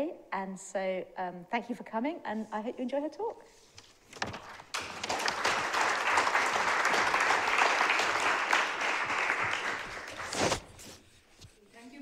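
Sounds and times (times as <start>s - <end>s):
audience applauding: 4.7s - 10.4s.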